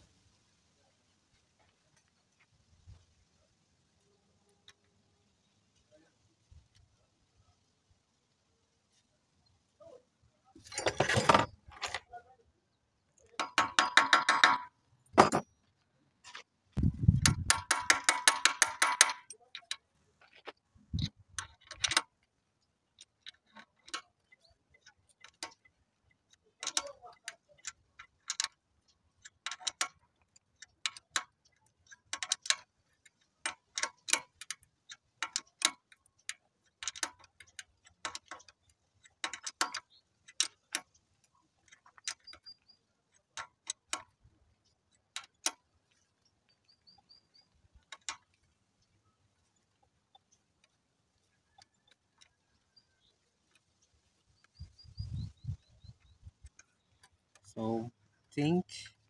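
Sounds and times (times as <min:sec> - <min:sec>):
thread tap clicking in metal: 0:16.8 - 0:19.8, 0:26.4 - 0:28.6.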